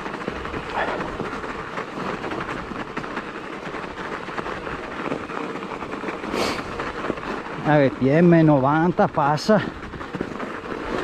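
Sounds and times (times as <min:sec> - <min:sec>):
bike tyres crunching on snow: 0:00.0 - 0:11.0.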